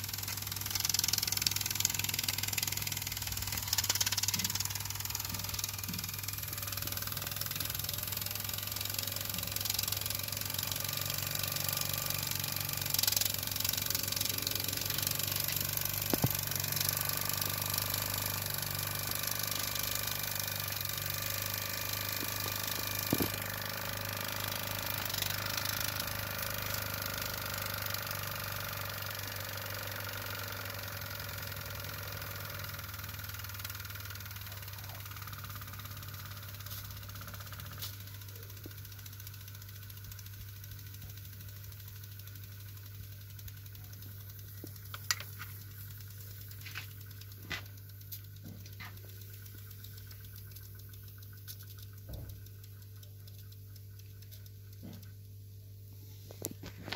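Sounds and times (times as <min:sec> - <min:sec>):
sharp clicks: 0:00.0 - 0:10.2, 0:42.0 - 0:56.9
toy steam engine chuffing: 0:00.0 - 0:56.9.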